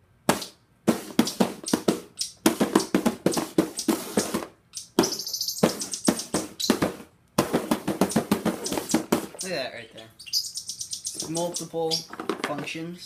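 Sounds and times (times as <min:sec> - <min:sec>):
hands drumming on cardboard box: 0:00.3 - 0:09.4.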